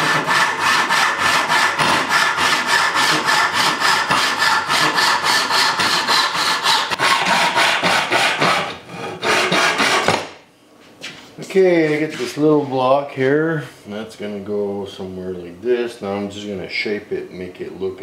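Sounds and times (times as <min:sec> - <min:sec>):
hand saw cutting wood: 0:00.0 - 0:10.3.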